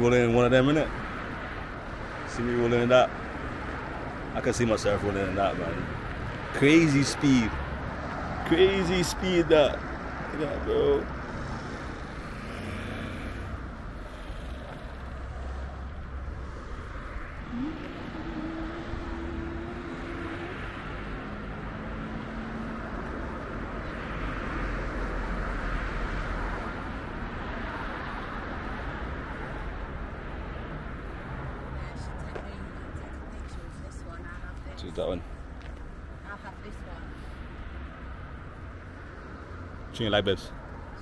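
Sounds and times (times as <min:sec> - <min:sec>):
road traffic rumble: 0:00.0 - 0:41.0
droning tone: 0:17.4 - 0:21.1.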